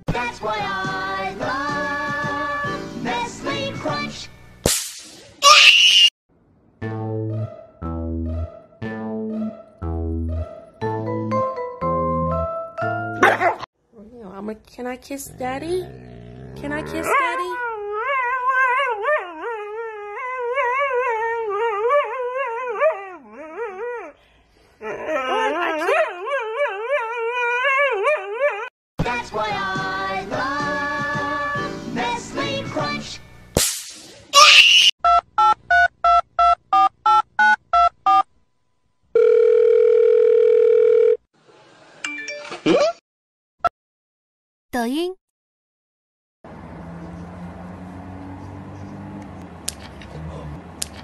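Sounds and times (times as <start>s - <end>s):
dog howling: 24.9s - 28.7s
phone line ringing tone: 39.2s - 41.2s.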